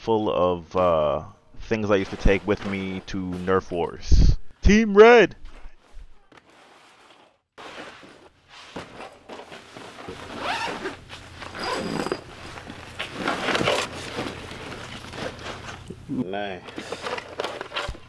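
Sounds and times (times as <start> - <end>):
fabric rustling: 5.4 - 15.8
bag zipper pulled open: 10.2 - 12.4.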